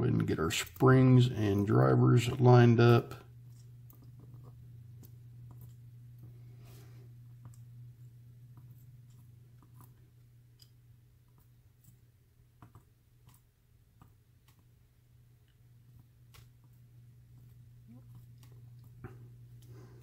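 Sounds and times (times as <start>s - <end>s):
low steady hum: 0.0s - 20.0s
tweezers clicking on small parts: 10.5s - 12.0s.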